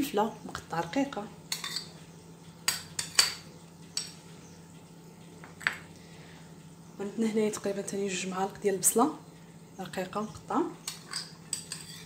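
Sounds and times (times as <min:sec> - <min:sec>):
metal spoon clinking on ceramic bowl: 0:01.5 - 0:01.9, 0:02.7 - 0:03.4, 0:10.9 - 0:12.0.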